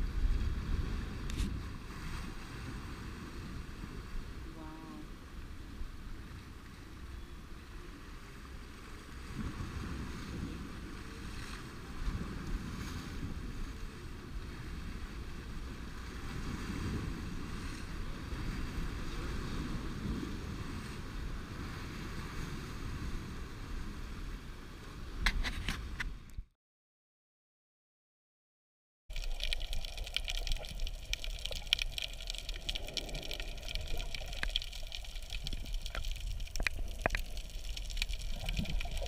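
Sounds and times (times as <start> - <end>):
wind rumble on microphone: 0.0 - 26.5.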